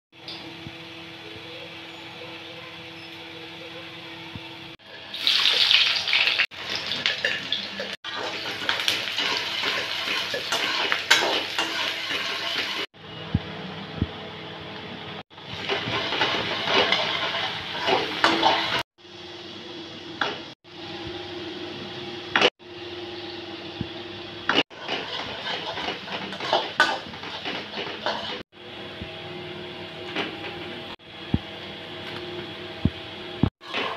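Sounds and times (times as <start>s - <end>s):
onions sizzling in oil: 5.1s - 12.9s
spatula scraping a pan: 7.8s - 12.9s, 15.6s - 18.8s, 24.6s - 28.4s.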